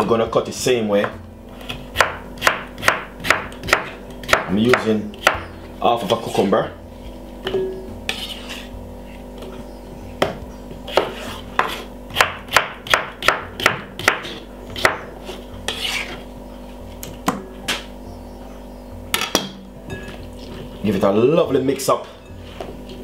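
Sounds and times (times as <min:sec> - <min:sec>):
knife chopping on wooden board: 0:01.0 - 0:06.4, 0:10.2 - 0:16.2.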